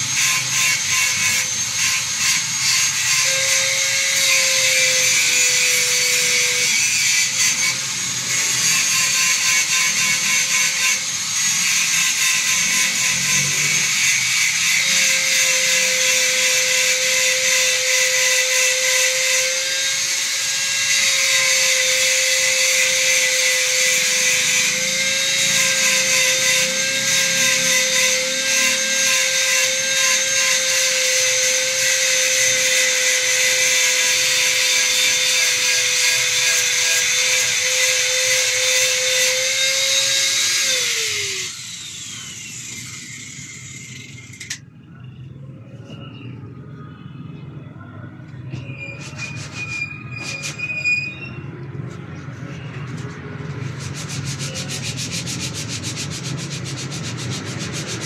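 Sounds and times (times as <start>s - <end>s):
power tool motor whine: 0.0s - 44.6s
loud rasping on wood: 14.5s - 41.4s, 52.9s - 58.0s.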